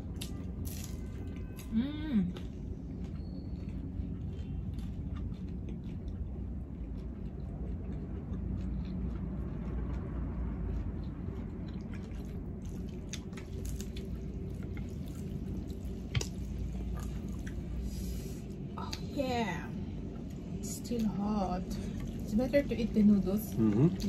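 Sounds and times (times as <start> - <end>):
wet chewing and crunching: 0.0 - 17.9
steady low hum: 0.0 - 24.0.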